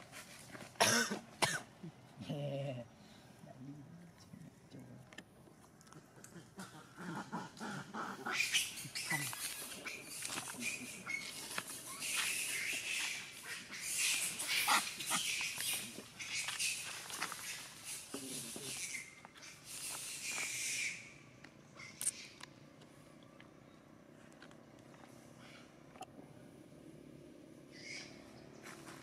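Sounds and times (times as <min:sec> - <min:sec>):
monkeys shrieking: 0:06.2 - 0:21.2, 0:21.8 - 0:22.4, 0:27.7 - 0:28.2.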